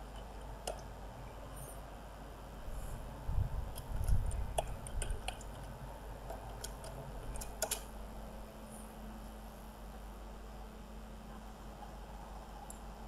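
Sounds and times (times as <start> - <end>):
keyboard keys clicking: 3.7 - 7.9.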